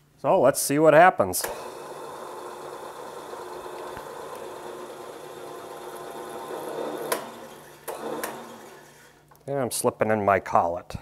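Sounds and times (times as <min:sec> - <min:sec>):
milling machine spindle running: 0:01.5 - 0:09.2.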